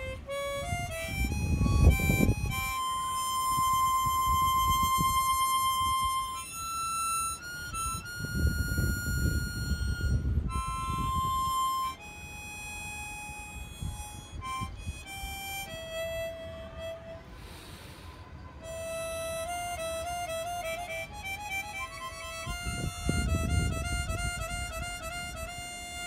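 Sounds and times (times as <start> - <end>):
harmonica melody: 0.0 - 26.0
breathy rush: 16.8 - 20.2.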